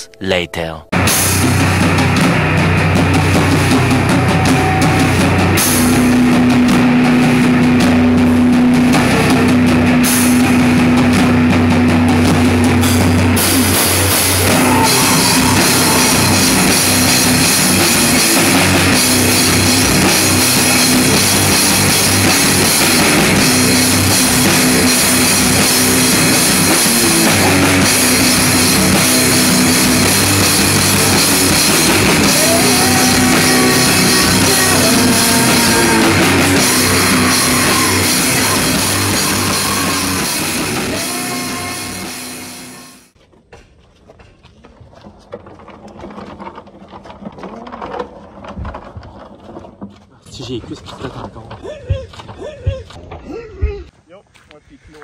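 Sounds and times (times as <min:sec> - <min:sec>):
heavy rock band playing: 0:00.8 - 0:43.2.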